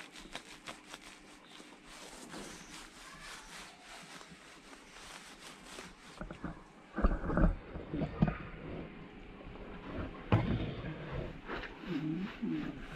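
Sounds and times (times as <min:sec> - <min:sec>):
wet rubbing and squishing: 0:00.0 - 0:07.5.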